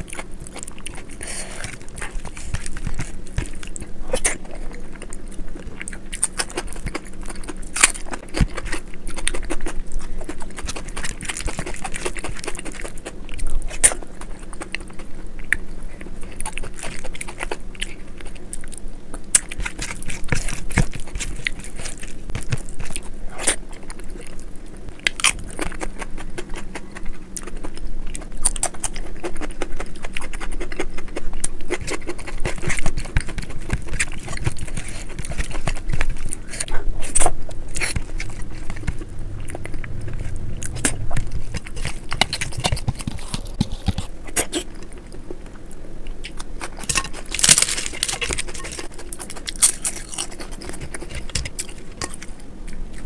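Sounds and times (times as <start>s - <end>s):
wet chewing: 0.0s - 53.0s
sharp clicks and smacks: 37.8s - 44.6s.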